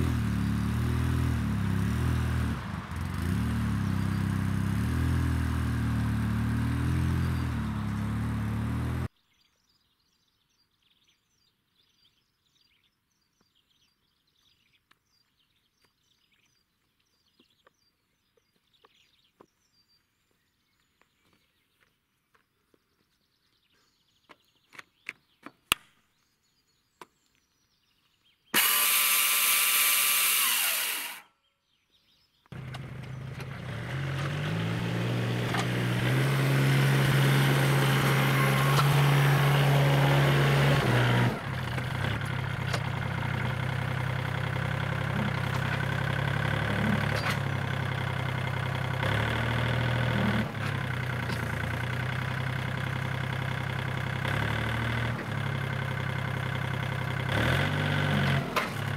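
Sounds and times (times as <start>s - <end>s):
tractor engine running: 0.0s - 9.1s, 32.5s - 58.9s
loud machine whirring: 28.6s - 31.2s.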